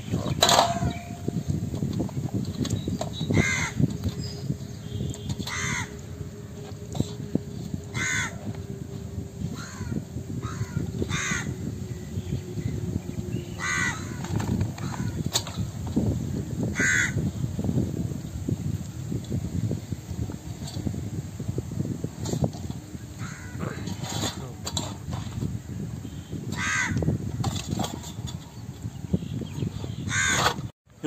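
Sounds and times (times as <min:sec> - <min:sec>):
crows cawing: 0:03.3 - 0:03.8, 0:05.4 - 0:06.0, 0:07.9 - 0:08.5, 0:09.5 - 0:11.7, 0:13.6 - 0:15.2, 0:16.7 - 0:17.2, 0:23.2 - 0:23.6, 0:26.5 - 0:27.1, 0:30.1 - 0:30.4.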